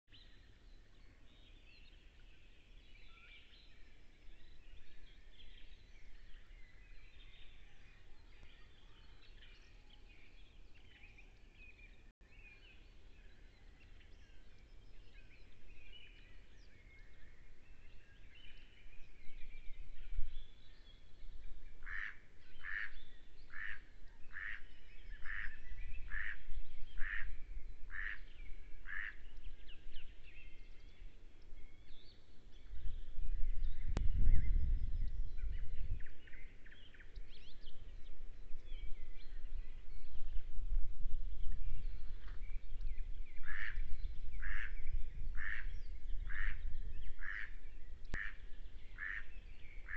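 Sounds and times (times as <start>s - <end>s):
small birds singing and chirping: 0.1s - 49.9s
loud bird calls: 21.8s - 29.4s, 43.3s - 49.9s
low rumble: 32.6s - 36.4s.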